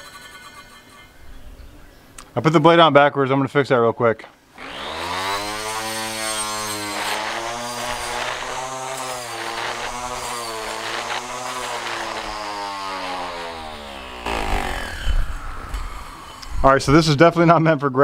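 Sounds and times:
string trimmer motor whine: 4.6s - 16.7s.

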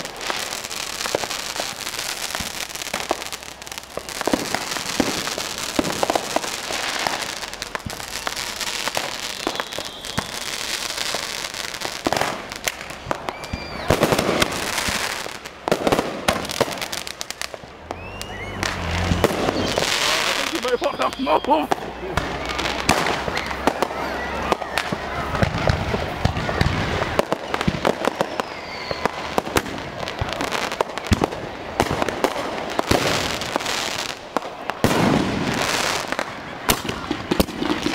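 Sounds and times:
firework whistles: 0.0s - 37.9s
fireworks popping and crackling: 0.0s - 37.9s.

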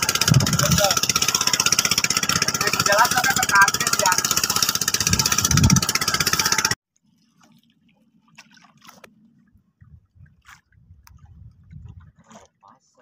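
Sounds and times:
small boat engine running: 0.0s - 6.8s
water lapping: 0.0s - 13.0s.

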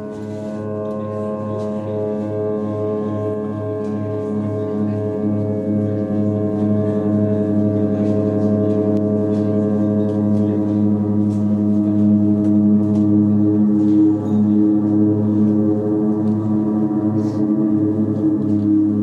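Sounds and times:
ambient drone music: 0.0s - 19.0s
pulsing low beat: 0.0s - 19.0s.

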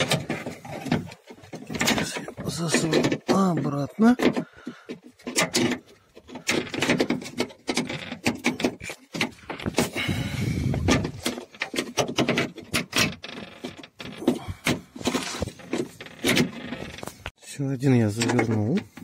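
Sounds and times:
scraping rustle: 13.3s - 17.3s.

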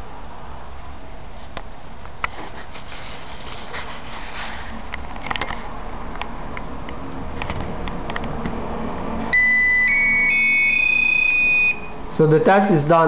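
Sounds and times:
electronic beeps rising in pitch: 9.3s - 12.0s.

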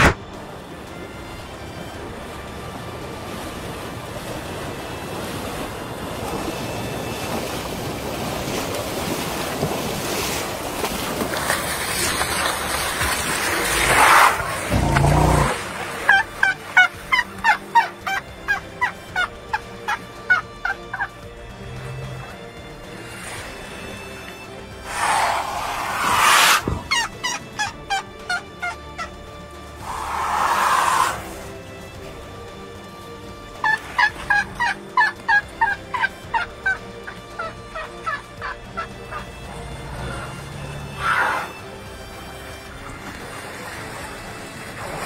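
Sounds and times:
young elephant squeaking calls: 24.8s - 29.1s, 29.8s - 31.4s, 37.0s - 41.6s
elephant calf squeaking calls: 37.4s - 41.6s.

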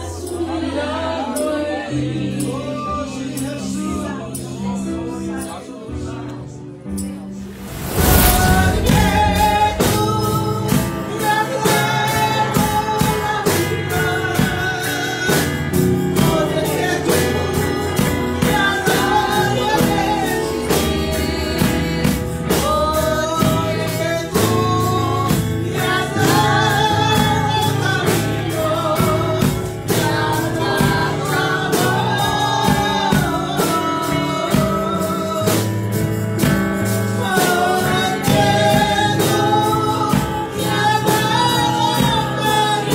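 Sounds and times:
gospel song: 0.0s - 42.9s
person singing: 7.4s - 35.7s.

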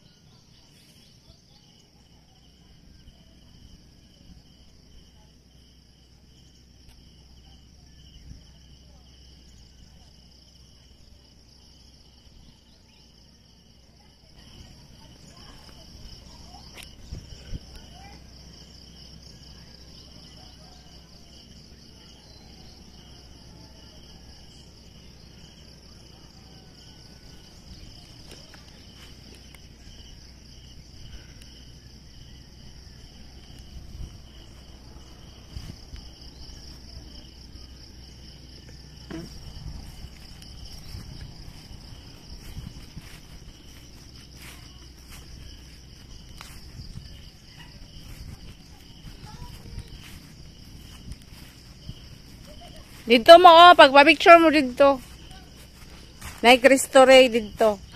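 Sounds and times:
low background rumble: 21.0s - 53.1s.

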